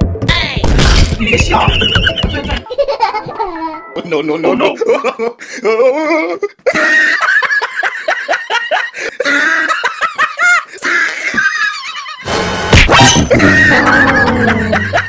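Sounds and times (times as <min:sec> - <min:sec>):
high-pitched laughter: 0:01.7 - 0:03.8, 0:04.7 - 0:12.3, 0:13.2 - 0:15.0.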